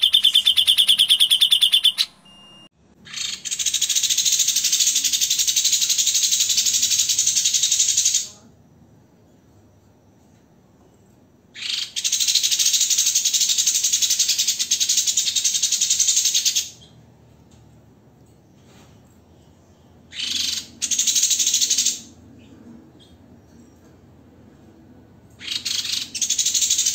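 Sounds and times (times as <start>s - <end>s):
songbird harsh rapid trill: 0.0s - 2.2s.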